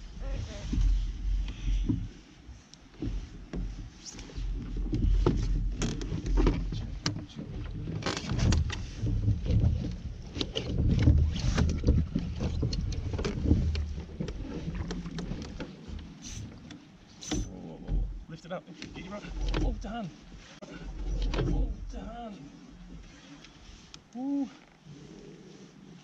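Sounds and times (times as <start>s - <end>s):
water and wind against hull: 0.0s - 26.0s
knocks and rattles of gear: 2.9s - 19.9s.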